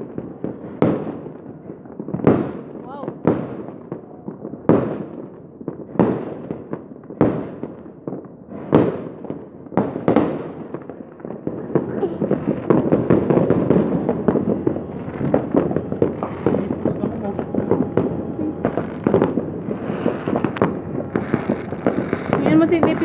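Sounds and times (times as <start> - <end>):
fireworks bangs: 0.0 - 23.0
rapid crackling pops: 11.5 - 23.0.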